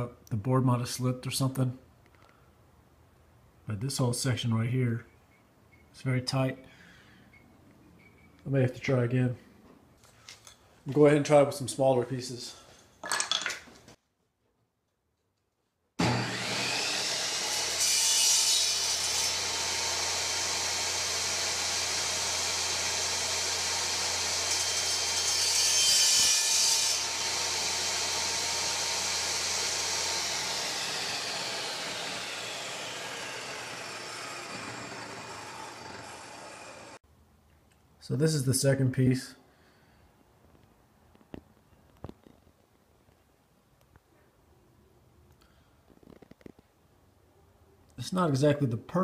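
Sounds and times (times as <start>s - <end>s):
saw blade cutting wood: 16.0s - 37.0s
table saw running: 16.0s - 37.0s.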